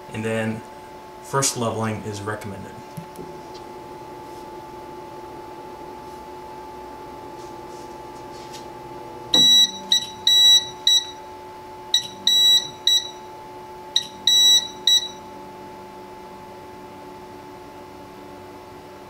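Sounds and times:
machine hum winding down: 0.0 - 19.0
high buzzer beeps: 9.3 - 11.2, 11.9 - 13.3, 13.9 - 15.3.

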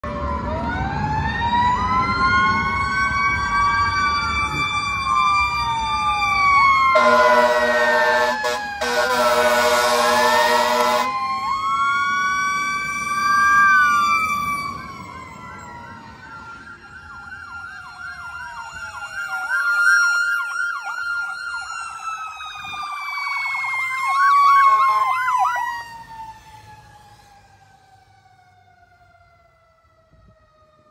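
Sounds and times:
sirens wailing and yelping: 0.0 - 30.9
horn blast: 7.0 - 11.1.

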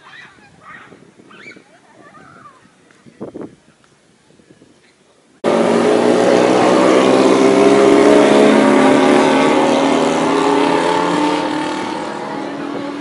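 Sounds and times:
motorcycle engines passing: 5.4 - 13.0.

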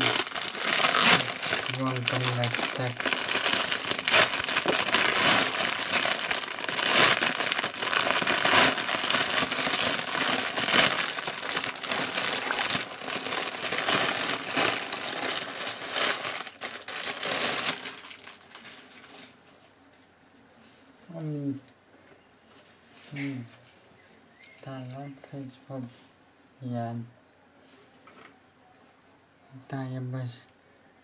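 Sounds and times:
plastic packaging crinkling: 0.0 - 19.4.

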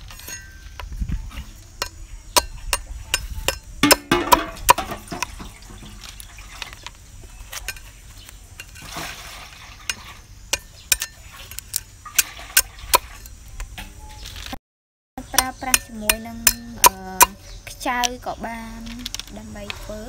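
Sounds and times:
cleaver chopping on wooden block: 1.8 - 5.4.

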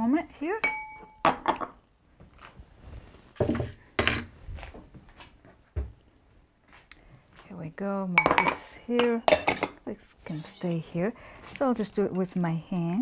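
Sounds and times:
ringing glass clink: 0.6 - 1.5, 4.0 - 4.4
glass dishes clinking: 0.6 - 1.8, 3.4 - 4.4, 8.2 - 9.8.

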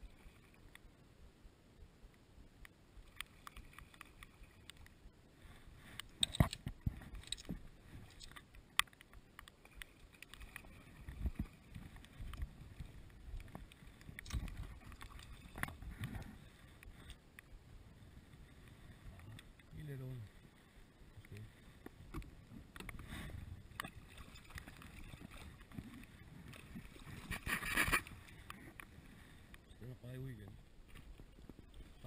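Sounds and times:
water splashing and sloshing: 3.0 - 29.6
clicks handling fishing rod: 6.0 - 10.4.

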